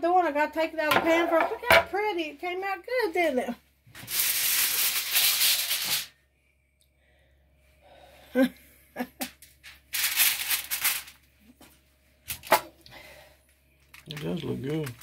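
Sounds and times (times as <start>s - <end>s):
aluminium foil crinkling: 4.0s - 6.2s, 9.4s - 11.6s, 13.7s - 15.0s.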